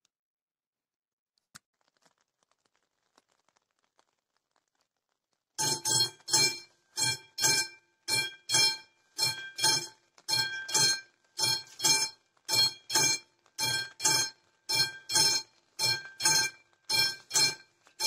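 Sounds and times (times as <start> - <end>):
level crossing warning bell: 5.6 - 17.7.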